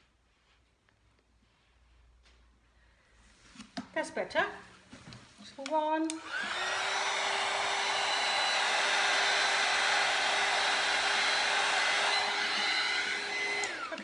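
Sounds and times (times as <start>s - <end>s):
heat gun blowing air: 6.1s - 14.0s.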